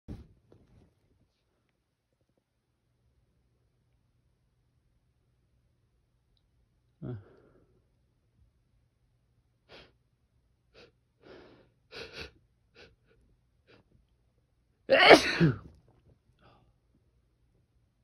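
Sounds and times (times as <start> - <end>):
person sneezing: 14.9 - 15.7.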